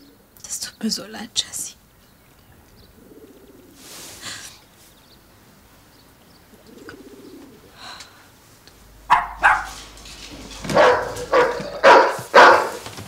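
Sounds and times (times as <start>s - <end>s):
dog barking: 9.0s - 13.0s.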